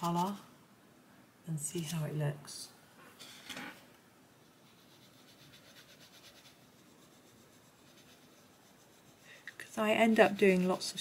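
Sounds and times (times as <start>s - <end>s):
pencil scratching on paper: 4.5s - 11.0s.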